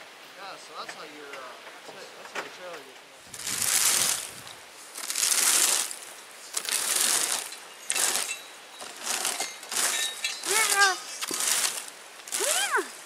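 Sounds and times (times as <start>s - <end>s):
rake scraping over gravel: 3.3s - 13.0s.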